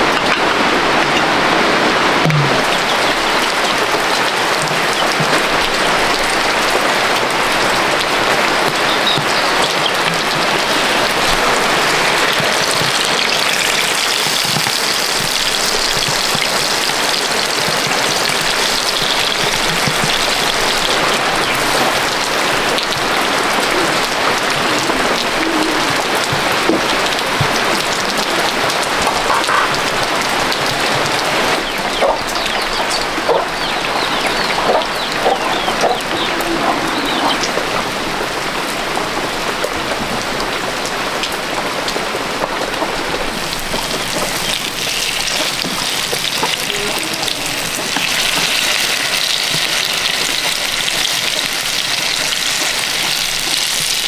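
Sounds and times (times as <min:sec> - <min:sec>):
tofu sizzling in hot oil: 0:47.6 - 0:54.0.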